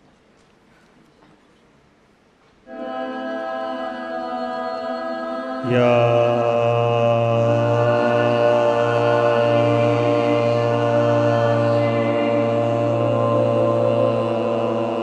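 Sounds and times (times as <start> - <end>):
voices chanting: 2.7 - 15.0
man chanting a long low note: 5.6 - 15.0.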